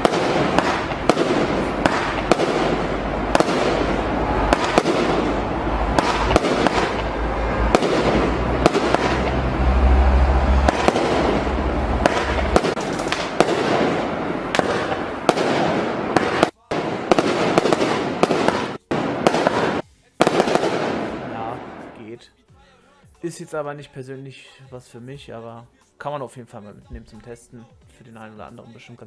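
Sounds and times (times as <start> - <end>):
firework shots and bursts: 0.0 - 9.5, 10.6 - 22.0
heavy low boom: 0.0 - 16.2
firework crackling: 0.0 - 22.1.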